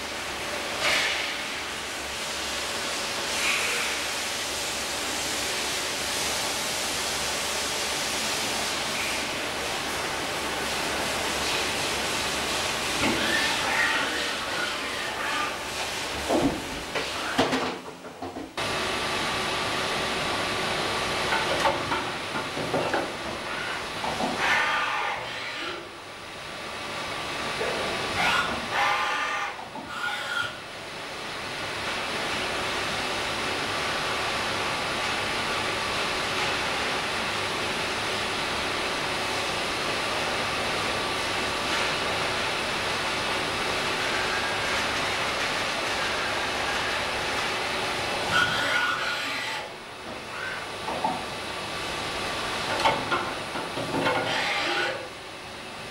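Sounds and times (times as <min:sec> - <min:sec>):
machine running hiss: 0:00.0 - 0:17.6, 0:18.6 - 0:55.9
hiss of coolant spray and air: 0:00.1 - 0:13.7.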